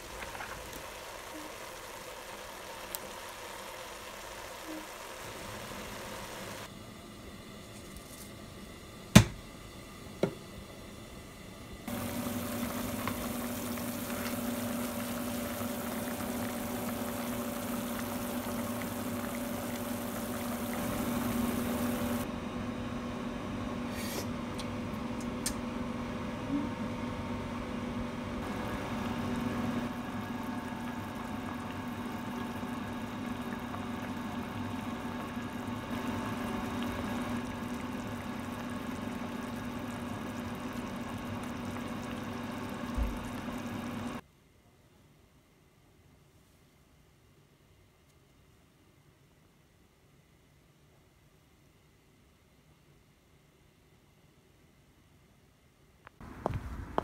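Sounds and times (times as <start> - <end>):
soup bubbling in a pot: 0.0 - 6.7, 11.9 - 22.3, 28.4 - 44.2.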